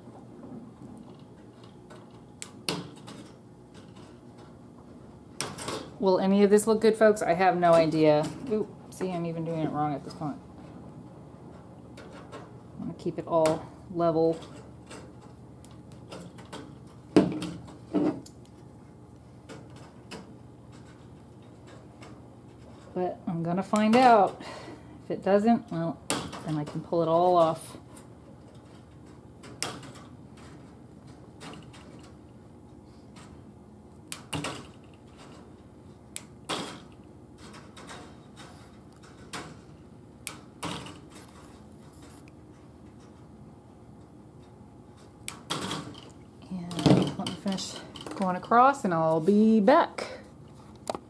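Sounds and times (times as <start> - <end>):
wire scraping rattle: 14.0 - 18.3, 19.4 - 24.3.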